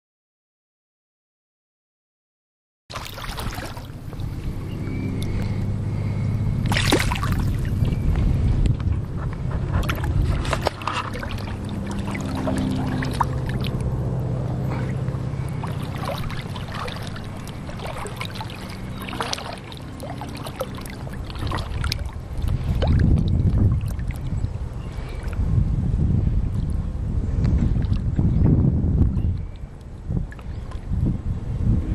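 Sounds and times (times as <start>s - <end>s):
small splashes and ticks: 2.9s - 4.5s, 6.6s - 14.0s, 14.6s - 25.5s, 26.5s - 26.8s, 27.4s - 28.2s, 29.4s - 30.9s
faint steady hum: 2.9s - 31.9s
shallow rippling water: 2.9s - 31.9s
wind rumbling on microphone: 3.0s - 31.9s.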